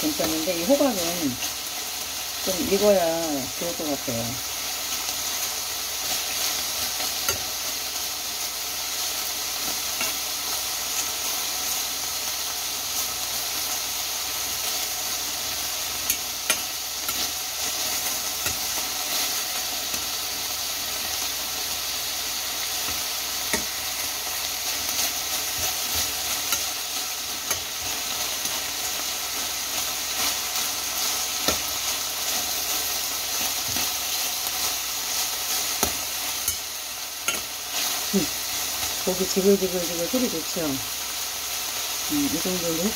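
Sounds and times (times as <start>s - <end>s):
meat and vegetables sizzling: 0.0s - 42.9s
metal tongs clicking on pan: 7.1s - 7.5s, 16.0s - 17.3s, 18.4s - 18.8s, 22.8s - 23.8s, 26.4s - 26.8s, 27.4s - 28.6s, 35.8s - 37.5s.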